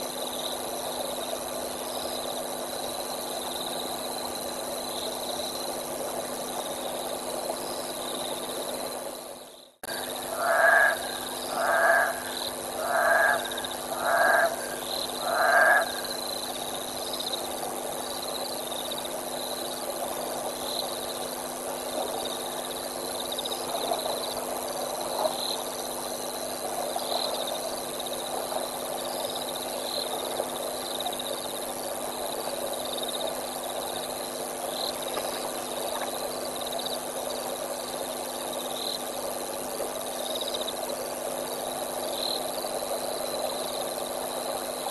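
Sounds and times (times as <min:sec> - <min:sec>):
frogs: 0:00.0 - 0:44.9
insects: 0:00.0 - 0:44.9
two-toned animal call: 0:09.9 - 0:16.2.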